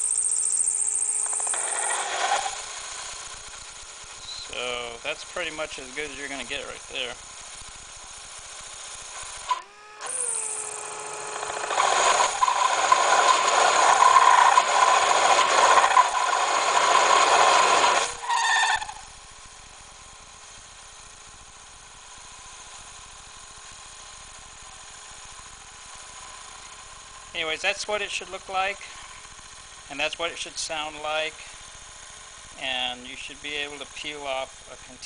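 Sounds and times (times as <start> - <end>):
lathe tool cutting metal: 0.0 - 19.1
lathe spinning: 0.0 - 35.0.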